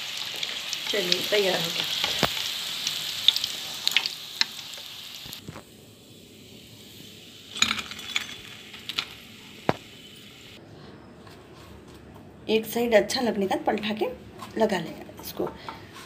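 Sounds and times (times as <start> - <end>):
hot oil sizzling: 0.0 - 10.6
metal spoon clinking: 7.6 - 9.1.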